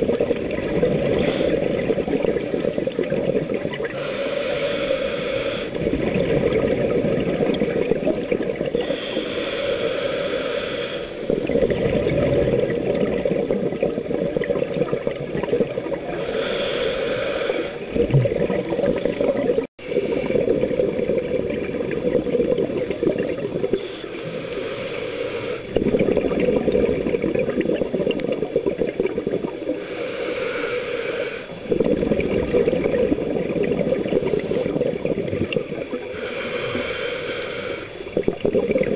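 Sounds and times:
exhaled bubbles rumbling underwater: 0:00.0 - 0:04.2, 0:04.9 - 0:09.4, 0:11.2 - 0:16.6, 0:17.7 - 0:24.8, 0:25.7 - 0:29.9, 0:31.5 - 0:37.0, 0:37.9 - 0:38.9
regulator inhalation hiss: 0:01.1 - 0:01.6, 0:03.9 - 0:05.8, 0:08.8 - 0:11.4, 0:16.2 - 0:17.8, 0:23.8 - 0:25.7, 0:29.8 - 0:31.6, 0:36.1 - 0:38.0.

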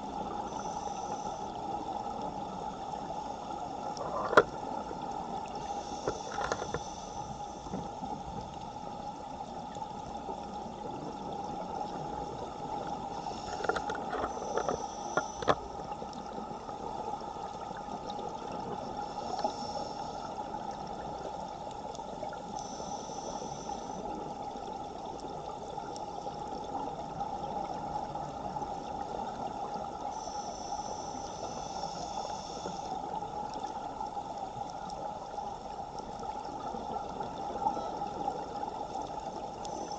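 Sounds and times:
underwater rush of water: 0:00.0 - 0:39.9
faint high hisses: 0:00.4 - 0:01.7, 0:05.6 - 0:07.7, 0:19.0 - 0:20.4, 0:22.6 - 0:24.1, 0:30.1 - 0:33.0.

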